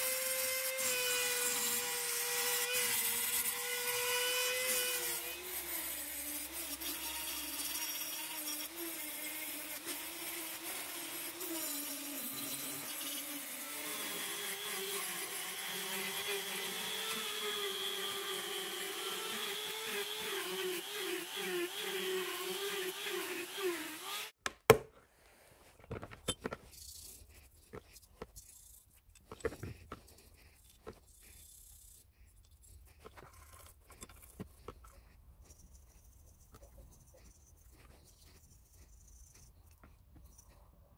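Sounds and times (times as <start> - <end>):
rotary tool sanding metal: 0.0 - 24.4
toothbrush scrubbing brass: 26.5 - 40.5.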